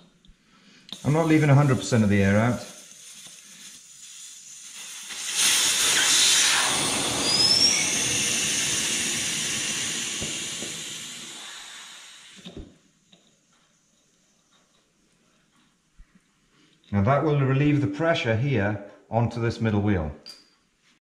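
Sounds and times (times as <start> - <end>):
air hissing from tyre valve: 0.8 - 14.2
short rising whistle: 5.3 - 12.4.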